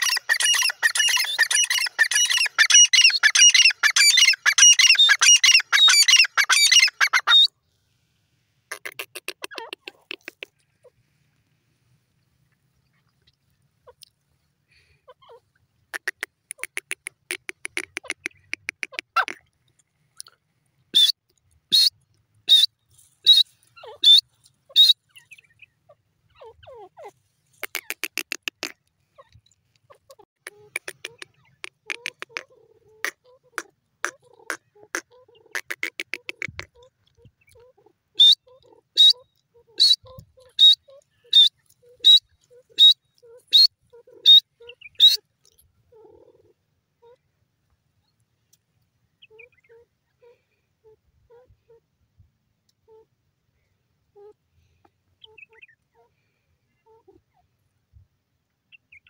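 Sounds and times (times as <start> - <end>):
francolin sharp calls: 0.0 - 7.5, 14.8 - 19.4, 21.0 - 29.3, 30.4 - 36.9, 38.2 - 45.3
bird chattering rattle: 16.0 - 19.4, 30.4 - 34.6, 35.5 - 36.8.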